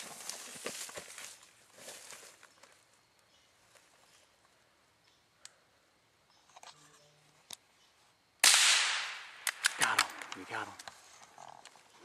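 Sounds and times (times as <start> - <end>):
faint clicks: 5.1 - 5.6
rifle shot with echo: 8.4 - 10.4.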